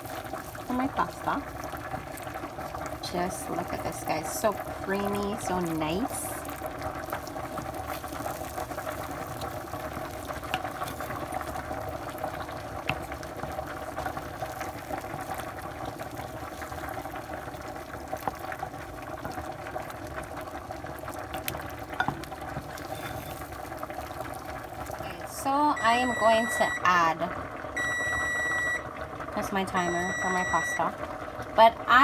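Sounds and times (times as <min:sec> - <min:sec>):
pot boiling with bubbling hiss: 0:00.0 - 0:32.0
wooden spoon scraping a dish: 0:22.6 - 0:23.4.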